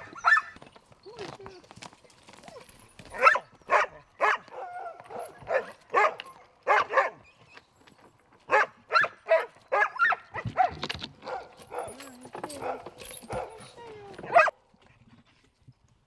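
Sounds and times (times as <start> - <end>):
dogs barking: 0.0 - 0.6, 2.6 - 7.2, 8.5 - 14.6.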